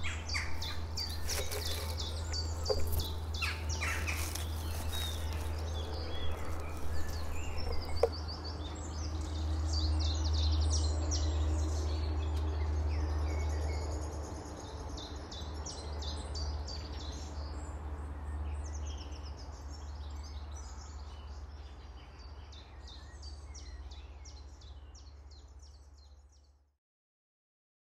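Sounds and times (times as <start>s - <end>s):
small birds chirping: 0.0s - 10.8s.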